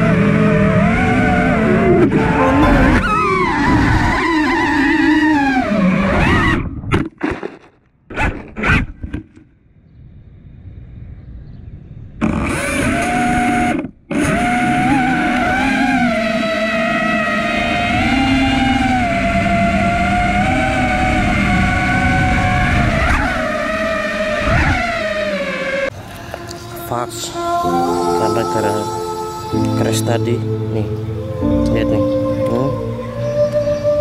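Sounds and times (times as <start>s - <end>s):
drone motors whining: 0.0s - 6.7s, 12.2s - 26.8s.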